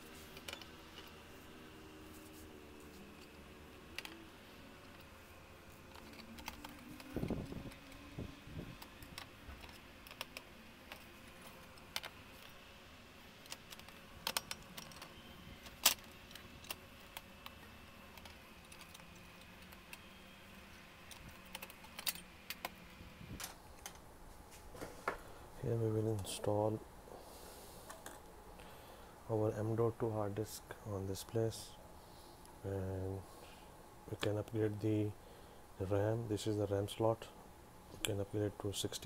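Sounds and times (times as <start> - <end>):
screwdriver clicks and metal taps: 5.9 - 8.0, 8.8 - 12.6, 13.4 - 20.1, 21.1 - 24.0.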